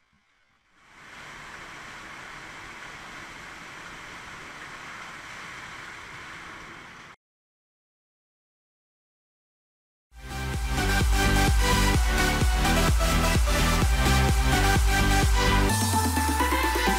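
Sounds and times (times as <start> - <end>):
water slide rushing water: 0.8 - 7.2.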